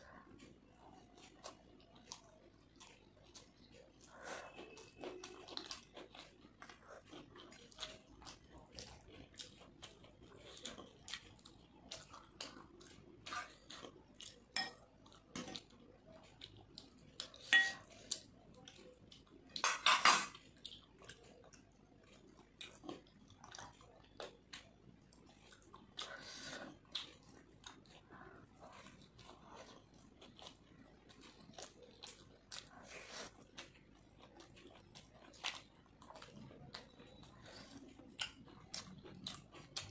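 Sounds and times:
close chewing and mouth sounds: 0:00.0 - 0:39.9
tableware clinking: 0:17.5 - 0:17.8, 0:19.7 - 0:20.4.

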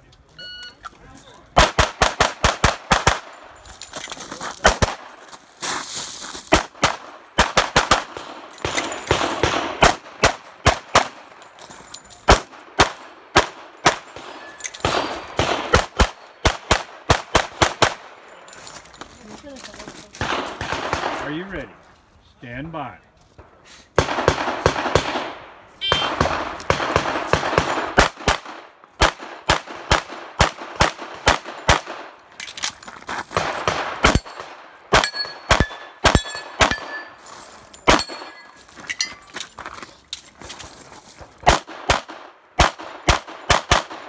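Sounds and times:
rapid pistol fire: 0:01.6 - 0:03.3, 0:06.5 - 0:11.2, 0:12.3 - 0:18.0, 0:20.2 - 0:21.2, 0:24.0 - 0:32.1, 0:33.4 - 0:36.9, 0:41.4 - 0:44.0
steel targets ringing: 0:35.0 - 0:39.2.

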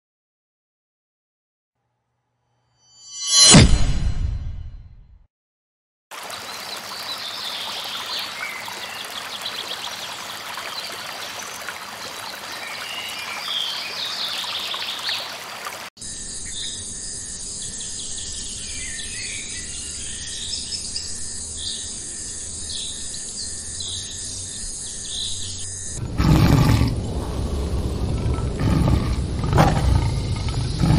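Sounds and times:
stream running over rocks: 0:06.1 - 0:15.9
birds chirping: 0:06.3 - 0:30.9
tiger roaring: 0:26.0 - 0:30.9.

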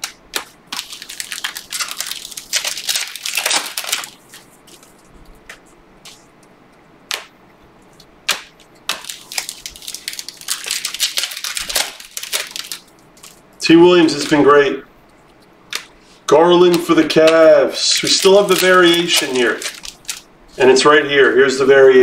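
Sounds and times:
foil card pack crinkling: 0:00.0 - 0:06.2, 0:08.0 - 0:14.5, 0:16.7 - 0:20.3.

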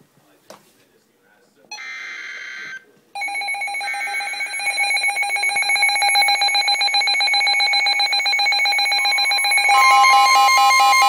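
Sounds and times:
rapid electronic alarm beeping: 0:03.2 - 0:11.0.

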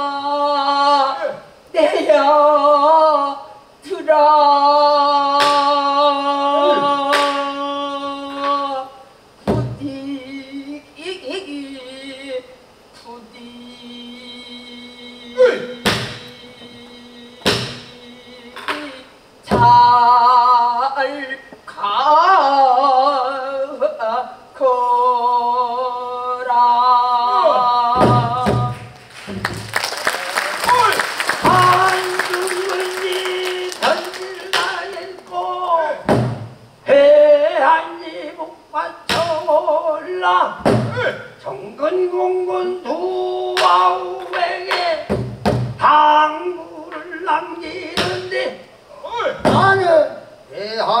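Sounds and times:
solo voice singing with vibrato: 0:00.0 - 0:29.0, 0:30.7 - 0:36.1, 0:36.8 - 0:45.2, 0:45.8 - 0:50.2
woman singing long note: 0:04.2 - 0:09.0
barrel drum strokes: 0:28.0 - 0:29.6, 0:36.0 - 0:36.6, 0:40.6 - 0:41.0.

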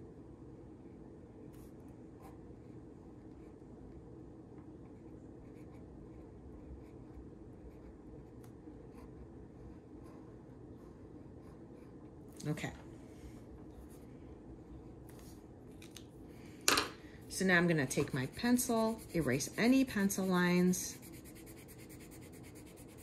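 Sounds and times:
low room hum: 0:00.0 - 0:23.0
marker pen scratching on card: 0:17.9 - 0:23.0.

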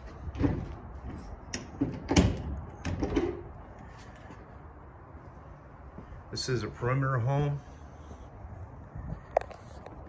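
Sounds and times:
shed door shutting and latching: 0:00.2 - 0:03.6.

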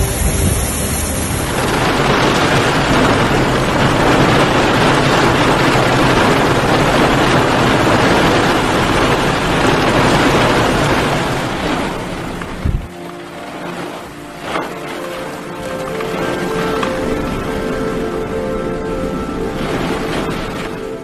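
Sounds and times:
wind buffeting microphone: 0:00.0 - 0:13.0
heavy rain pelting ground: 0:00.0 - 0:21.0.

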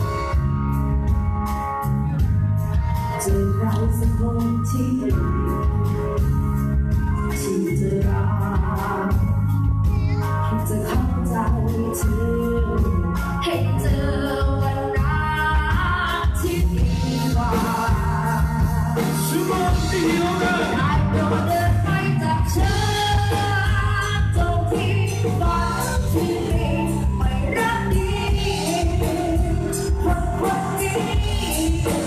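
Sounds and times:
live band through speakers: 0:00.0 - 0:32.0
person singing: 0:07.2 - 0:32.0.

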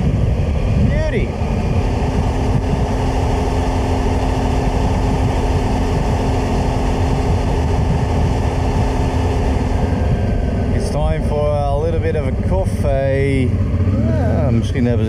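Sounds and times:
motorcycle engine running: 0:00.0 - 0:15.0
wind rushing over microphone: 0:00.0 - 0:15.0.

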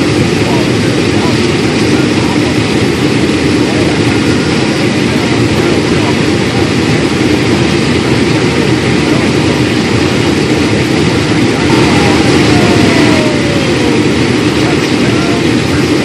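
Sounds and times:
combine engine and machinery drone: 0:00.0 - 0:16.0.

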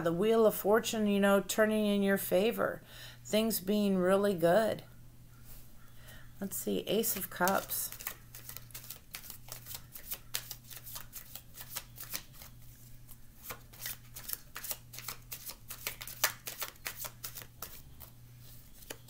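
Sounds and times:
cards being shuffled: 0:07.0 - 0:19.0.

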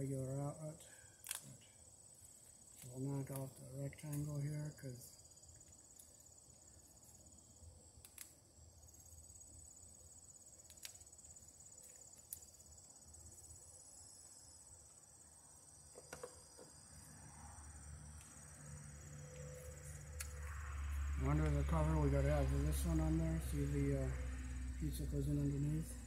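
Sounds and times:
high-pitched insect trilling: 0:00.0 - 0:07.6.

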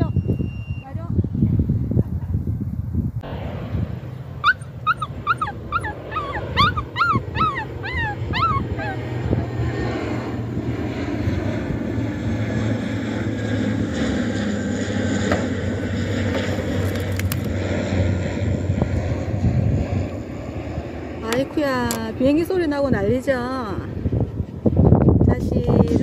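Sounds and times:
airplane passing overhead: 0:00.0 - 0:26.0
dog whining and yelping: 0:04.4 - 0:09.3.

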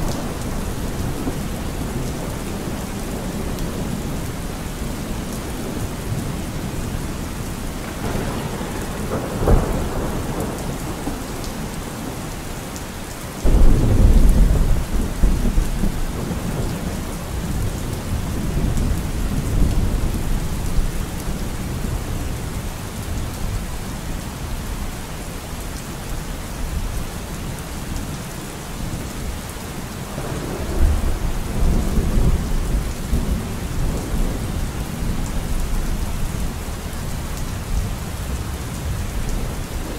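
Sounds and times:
thunder rumbling: 0:00.0 - 0:12.7, 0:13.4 - 0:22.0, 0:29.9 - 0:39.9
steady rain: 0:00.0 - 0:39.9
thunder crack: 0:07.8 - 0:11.3, 0:13.4 - 0:16.8.

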